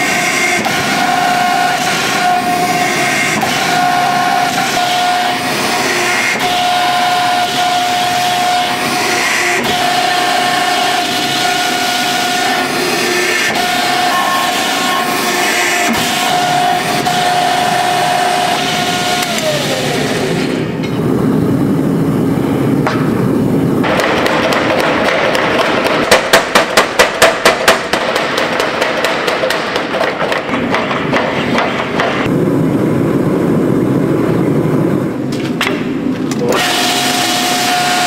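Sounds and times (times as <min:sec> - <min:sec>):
hydraulic press whining: 0:00.0 - 0:32.4, 0:34.4 - 0:38.0
power hammer pounding metal: 0:22.8 - 0:32.3.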